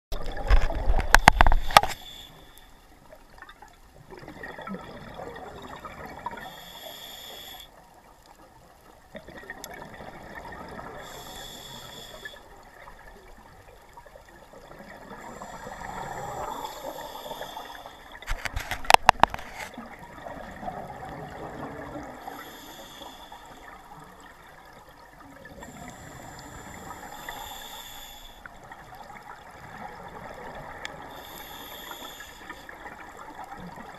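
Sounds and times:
underwater bubbling: 0.1s - 33.9s
diver breathing through regulator: 6.4s - 7.7s, 11.0s - 12.5s, 15.2s - 19.7s, 22.0s - 23.8s, 25.6s - 28.6s, 31.0s - 32.8s.

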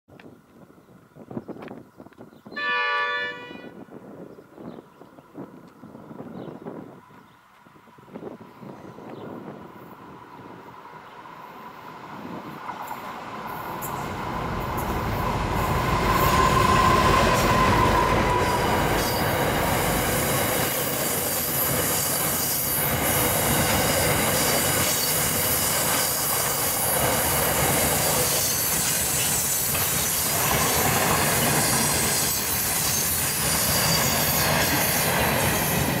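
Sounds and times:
locomotive rumble: 8.9s - 21.9s.

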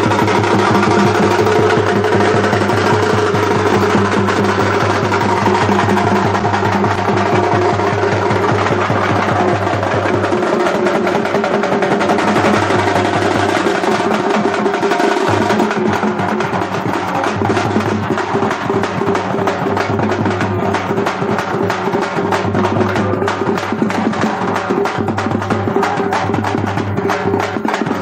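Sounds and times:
fast dense drumming: 0.0s - 28.0s.

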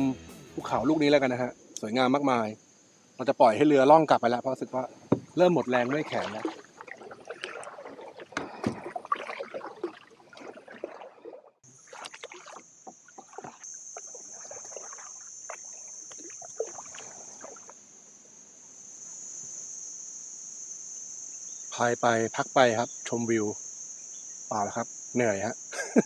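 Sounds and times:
high-pitched insect drone: 0.0s - 6.6s, 11.7s - 26.0s
paddle knocks: 5.1s - 11.1s
paddle splashing water: 5.1s - 17.8s.

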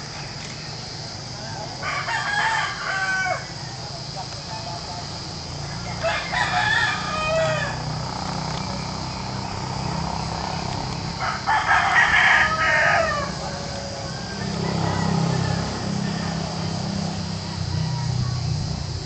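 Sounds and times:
background hiss and hum: 0.0s - 19.0s
rooster crowing: 1.4s - 3.8s, 5.6s - 8.1s, 11.0s - 18.1s.

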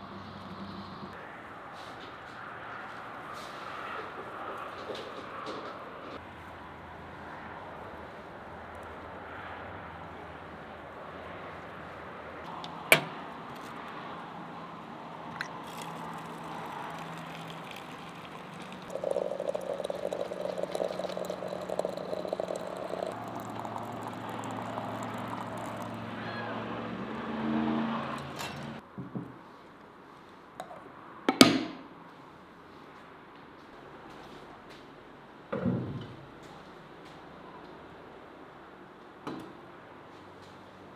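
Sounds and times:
tea bubbling in teapot: 15.2s - 26.3s.

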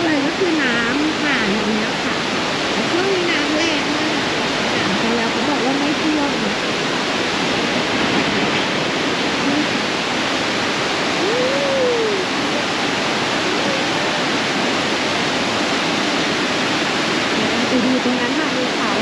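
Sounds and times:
river rushing: 0.0s - 19.0s
faint voice: 9.4s - 9.8s, 11.1s - 15.3s, 17.3s - 19.0s.

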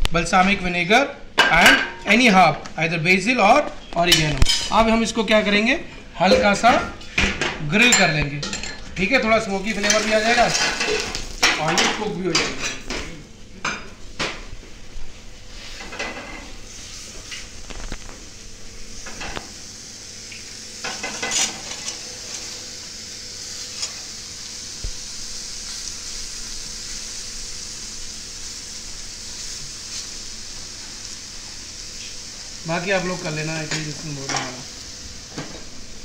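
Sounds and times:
eggplant sizzling on griddle: 9.1s - 36.0s.

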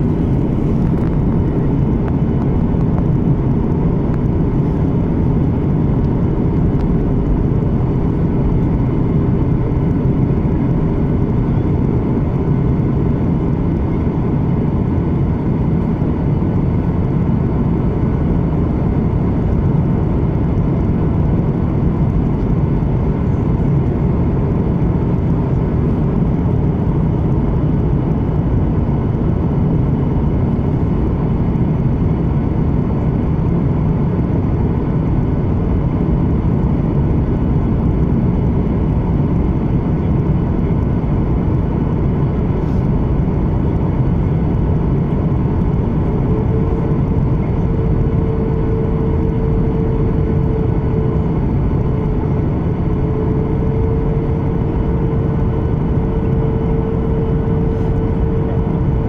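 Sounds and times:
rushing airflow: 0.0s - 14.6s, 36.8s - 59.0s
aircraft engines rumbling: 0.0s - 59.0s
faint steady hum: 0.0s - 59.0s.

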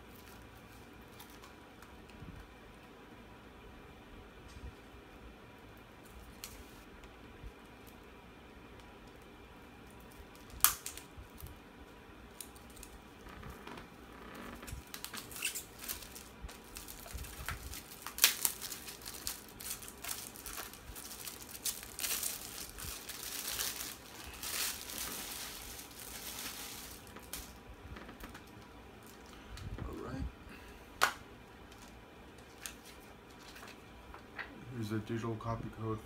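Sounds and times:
plastic crinkling and tearing: 0.1s - 1.9s, 10.0s - 11.5s, 12.3s - 29.4s, 31.7s - 33.8s
scissors cutting plastic wrap: 14.6s - 27.5s.

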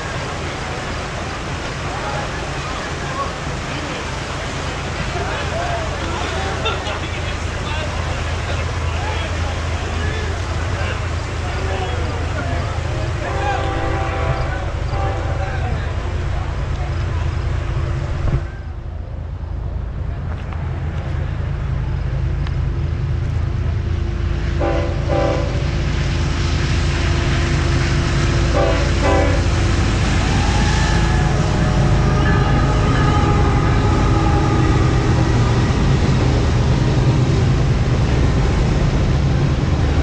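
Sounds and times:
freight train rumble: 0.0s - 40.0s
train horn blasts: 13.2s - 15.7s, 24.6s - 25.8s, 28.4s - 35.9s.

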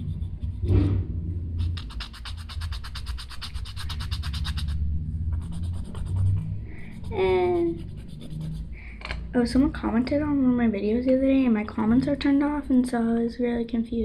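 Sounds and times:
nail file rasping on plastic nail: 1.6s - 4.8s, 5.4s - 8.6s.

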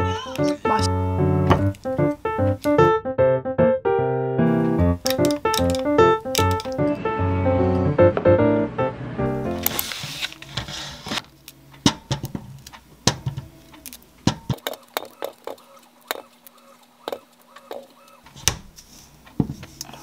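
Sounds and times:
handling rustle: 9.6s - 11.6s
grapes tapping metal strainer: 11.8s - 18.3s.

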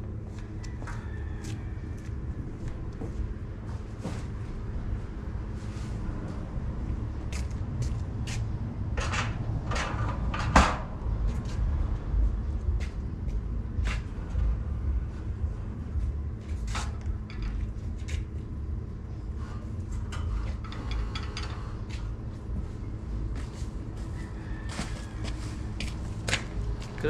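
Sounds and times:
steady low rumble: 0.0s - 27.0s
metal parts knocking and clanking: 16.7s - 17.7s.

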